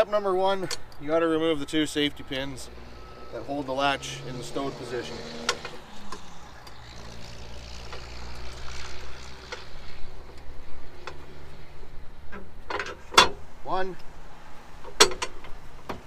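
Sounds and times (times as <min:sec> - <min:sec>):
metal clicks and knocks: 0:14.8 - 0:16.0.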